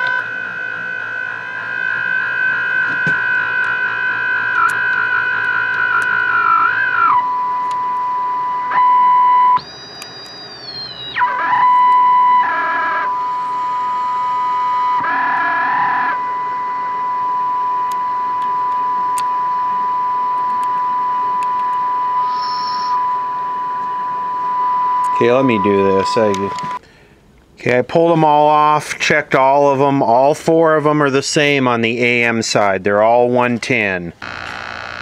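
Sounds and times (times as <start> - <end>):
high sliding radio squeals: 0.0 - 26.8, 34.2 - 35.0
radio speaker test tone: 0.0 - 26.8, 29.4 - 35.0.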